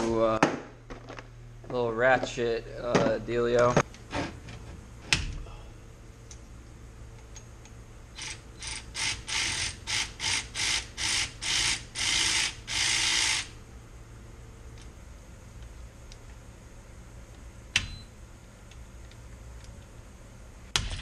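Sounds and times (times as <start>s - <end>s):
cordless ratchet bursts: 8.2s - 13.6s.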